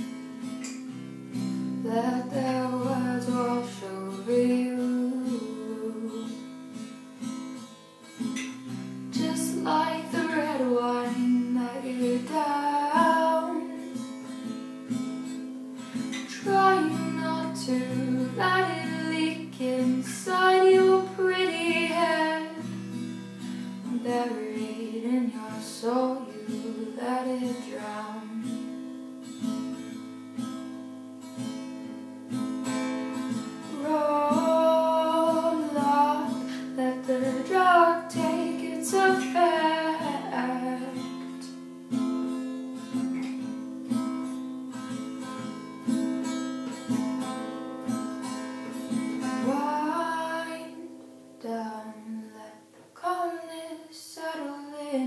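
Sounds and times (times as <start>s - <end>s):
strummed acoustic guitar: 0.0s - 53.7s
person singing: 1.8s - 6.3s, 9.2s - 13.8s, 16.1s - 22.7s, 23.9s - 28.4s, 33.7s - 41.5s, 49.1s - 50.8s, 51.4s - 55.0s.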